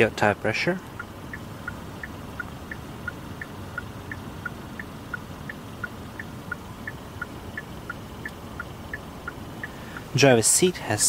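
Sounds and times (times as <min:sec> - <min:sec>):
car warning chime beeps: 0:00.0 - 0:10.2
low background noise: 0:00.0 - 0:11.0.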